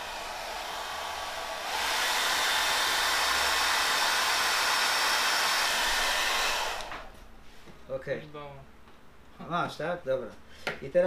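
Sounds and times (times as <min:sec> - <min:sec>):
hair dryer blowing: 0:00.0 - 0:07.2.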